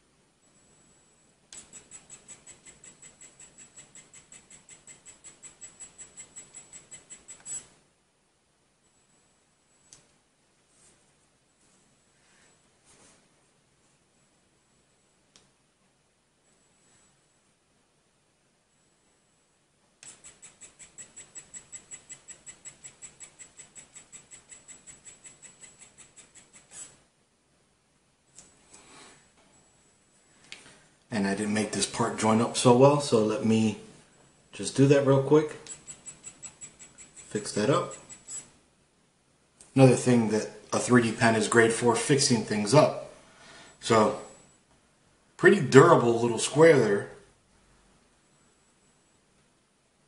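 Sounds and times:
pen motor clicking and whining: 1.5s - 7.7s, 20.0s - 27.0s, 35.5s - 38.6s.

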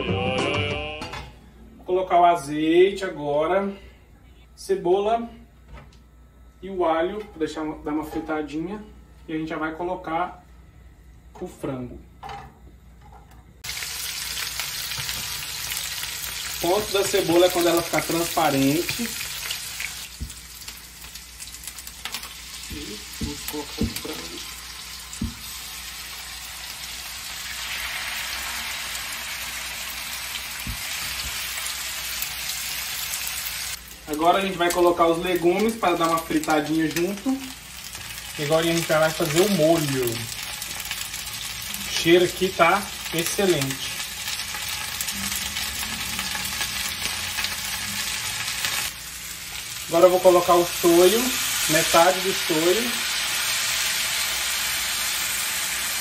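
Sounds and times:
food sizzling in a pan: 13.6s - 56.0s.

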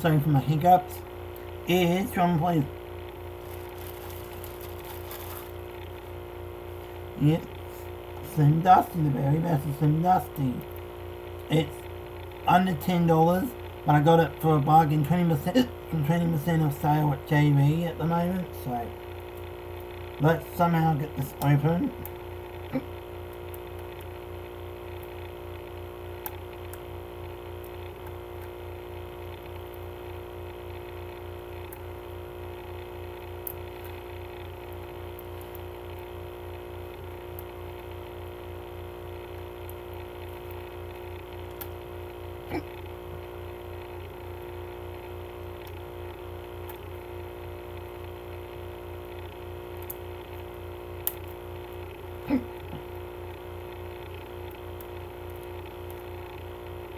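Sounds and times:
steady fluttering hum: 0.0s - 56.9s
fingers picking plastic wrap: 3.4s - 5.6s.

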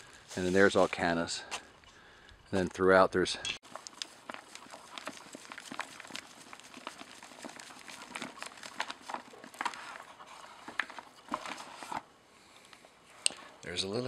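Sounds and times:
dry roots crackling and snapping: 3.6s - 11.9s.

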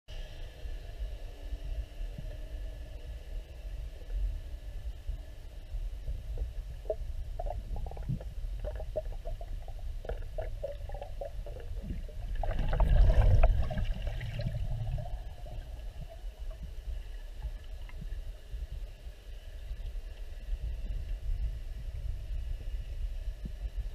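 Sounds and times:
low rumble of water: 0.1s - 23.9s
gurgling surge of water: 6.1s - 18.3s.

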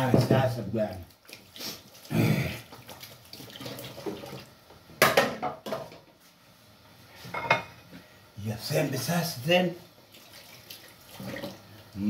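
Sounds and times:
tap water splashing: 2.7s - 5.8s.

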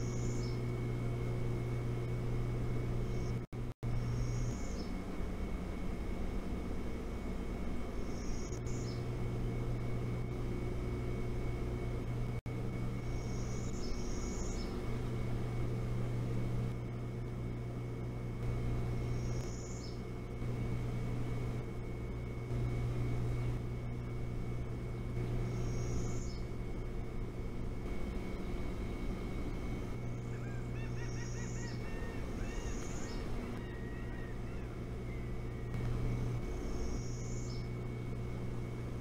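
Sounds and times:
small bird chirping: 0.0s - 0.7s, 4.0s - 5.0s, 8.0s - 9.2s, 13.0s - 14.8s, 19.0s - 20.1s, 25.4s - 26.6s, 29.4s - 35.8s, 36.5s - 37.8s
faint high whine: 0.0s - 39.0s
low mechanical drone: 0.0s - 39.0s.

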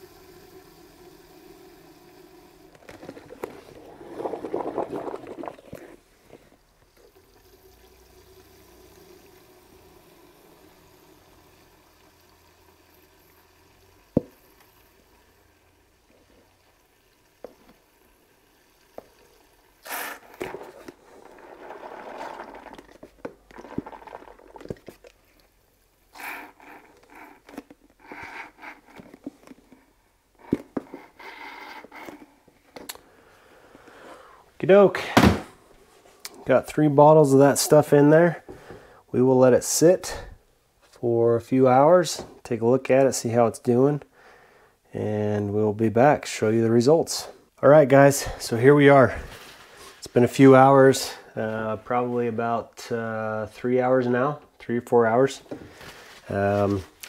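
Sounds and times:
liquid trickling and gurgling: 0.2s - 29.8s.

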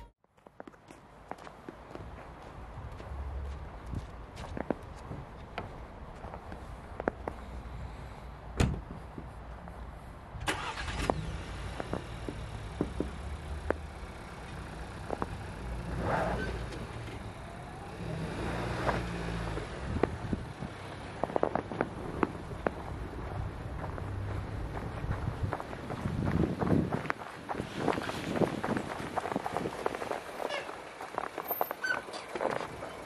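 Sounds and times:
tyres crunching on snow: 10.5s - 33.0s.

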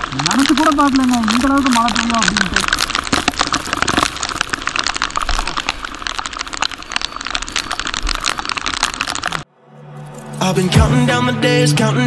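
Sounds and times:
rain drumming on microphone: 0.0s - 9.5s
wind: 0.0s - 11.2s
wet road rush: 0.0s - 11.9s.

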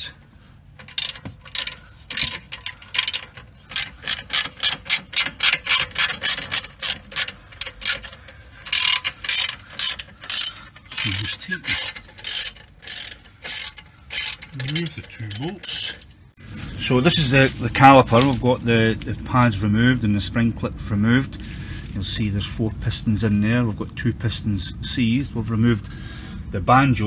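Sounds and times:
ratchet wrench clicking: 0.8s - 16.2s.

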